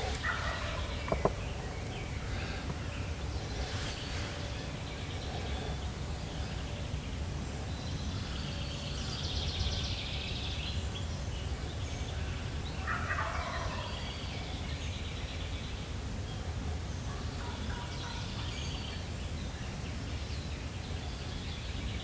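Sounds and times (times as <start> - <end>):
turkey gobbling: 0.0 - 1.4, 12.8 - 14.0
low background noise: 0.0 - 22.0.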